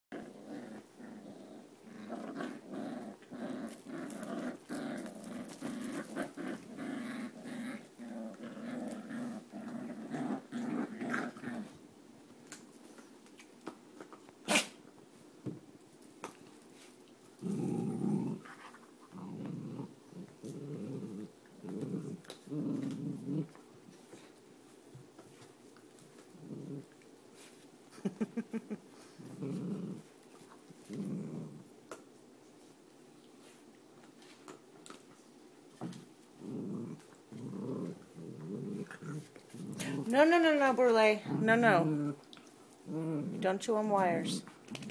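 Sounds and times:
dogs growling: 0.1 - 11.8, 17.4 - 24.3, 26.0 - 27.0, 28.0 - 30.1, 30.8 - 31.7, 35.8 - 43.6.

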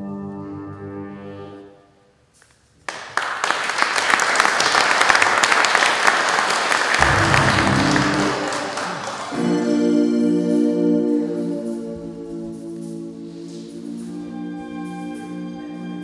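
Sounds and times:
audience applauding: 2.9 - 9.8
low music notes: 7.0 - 16.0.

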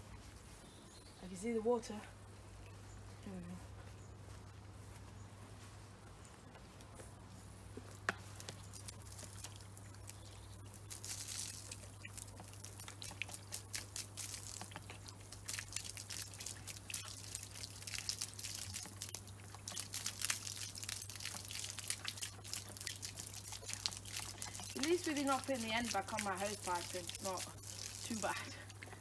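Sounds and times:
low steady hum: 0.0 - 29.0
hose spraying water into dish: 8.2 - 28.8.

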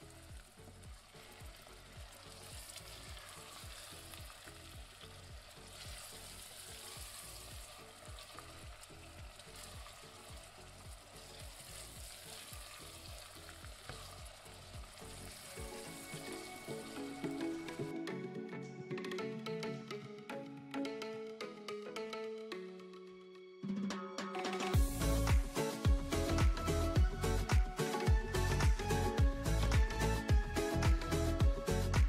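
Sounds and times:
meatballs sizzling in a pan: 0.0 - 16.9
soft background music: 0.0 - 32.0.

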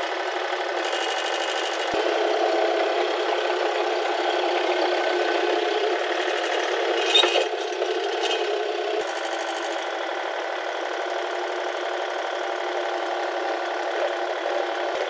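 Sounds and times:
mini excavator running: 0.0 - 15.0
rattling scraping mechanical clatter: 5.8 - 9.8
high metallic squeal: 6.1 - 8.7.

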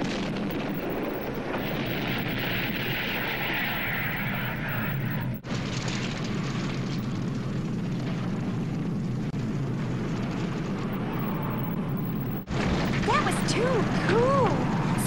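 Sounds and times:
large fire burning: 0.0 - 15.0.

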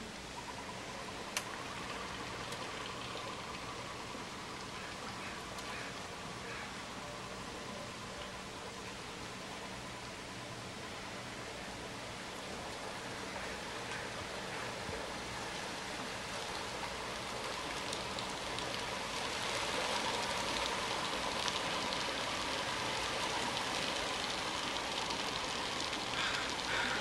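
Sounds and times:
ducks splashing in water: 12.4 - 27.0.

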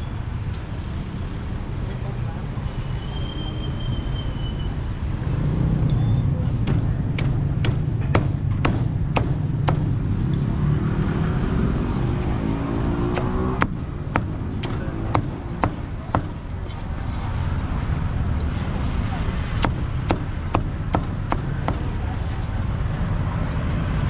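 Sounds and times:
low traffic rumble: 0.0 - 24.0
cleaver chopping on wooden block: 6.6 - 9.9, 13.1 - 16.4.

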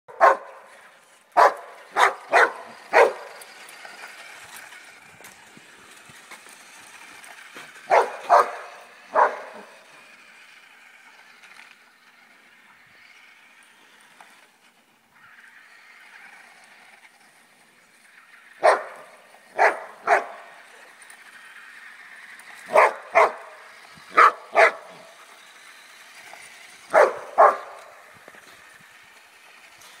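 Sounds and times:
dog barking: 0.1 - 0.5, 1.4 - 3.2, 7.9 - 9.6, 18.6 - 19.0, 19.6 - 20.4, 22.7 - 23.4, 24.2 - 24.9, 26.9 - 27.7
electric motor whine: 0.2 - 30.0.

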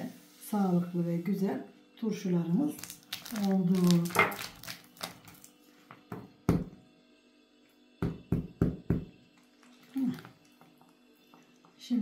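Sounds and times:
plastic bottle knocking on countertop: 8.0 - 9.1.

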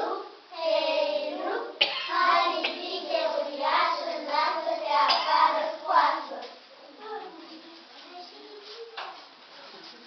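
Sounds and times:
high voices chanting: 0.0 - 6.4.

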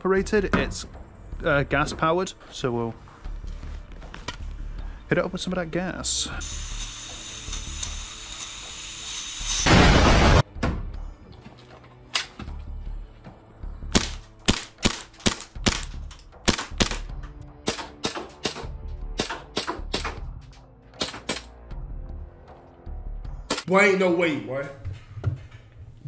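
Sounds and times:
airsoft pistol shots: 14.0 - 15.9, 16.5 - 17.1.

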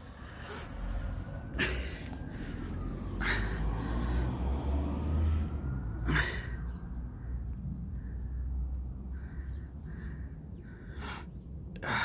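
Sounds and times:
water trickling onto wet tarmac: 6.0 - 9.2.

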